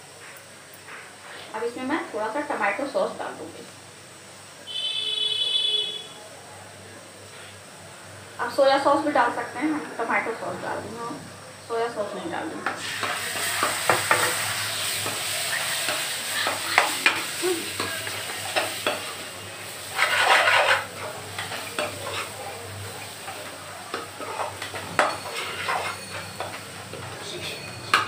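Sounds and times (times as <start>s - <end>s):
frying hiss: 0.0s - 28.0s
metal spoon scraping pan: 19.8s - 22.4s, 23.0s - 28.0s
spoon clinking against pan: 23.9s - 26.7s.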